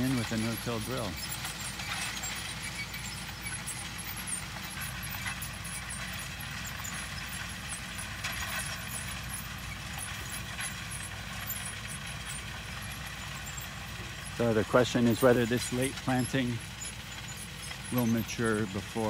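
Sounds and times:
tractor engine rumbling: 0.0s - 19.0s.

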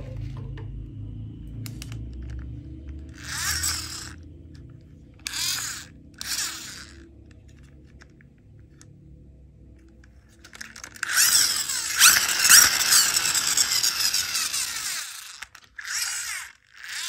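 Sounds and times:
toy truck wheels whirring: 3.1s - 8.1s, 10.2s - 17.0s.

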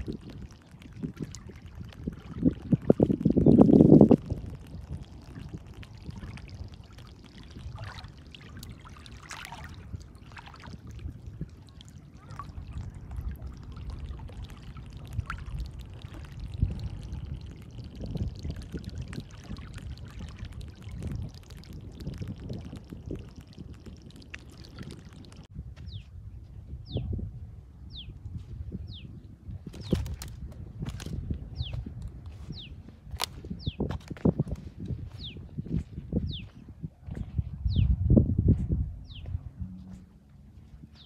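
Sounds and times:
water lapping at shore: 0.0s - 25.5s
steady low rumble: 0.0s - 41.0s.

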